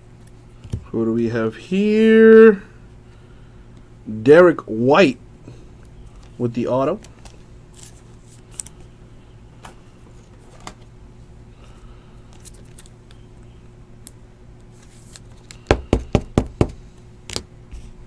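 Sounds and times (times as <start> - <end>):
small clicks of cards handled: 7.0 - 8.9, 12.3 - 13.2.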